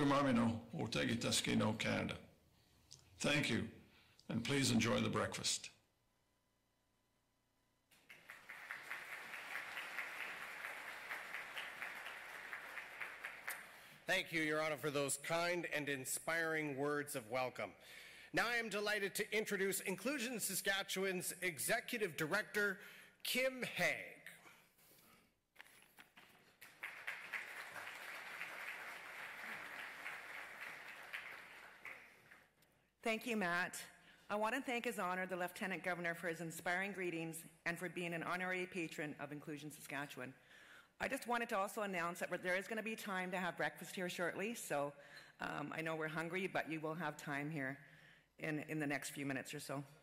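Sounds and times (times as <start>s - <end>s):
audience applauding: 7.9s - 14.0s, 26.2s - 32.5s.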